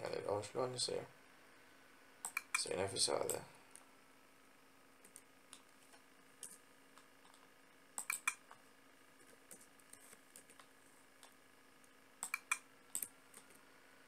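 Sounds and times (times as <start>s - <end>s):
faint room hiss: 0.0s - 14.0s
keyboard and mouse clicks: 2.2s - 3.4s, 6.4s - 8.6s, 9.5s - 11.4s, 12.2s - 13.5s.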